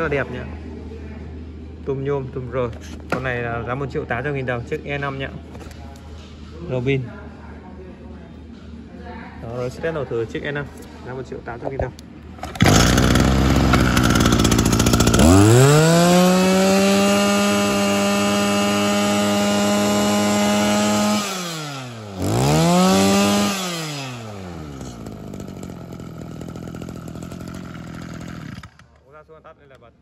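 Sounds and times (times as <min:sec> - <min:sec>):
brushcutter engine revving: 0:12.4 - 0:28.9.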